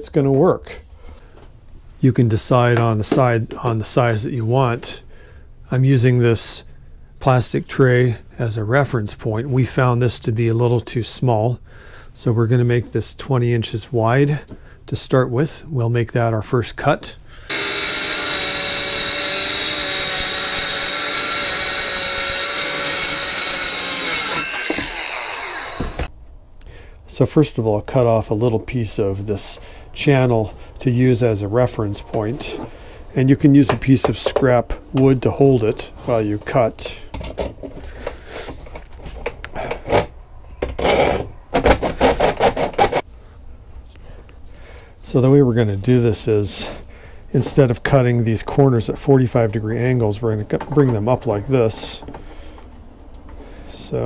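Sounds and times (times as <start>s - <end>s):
circular saw cutting plywood: 17.5s - 26.1s.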